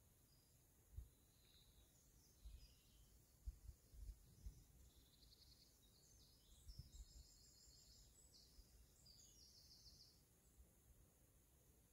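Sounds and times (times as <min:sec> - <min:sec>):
wind rumble on microphone: 0:03.4 - 0:04.9, 0:06.4 - 0:07.4.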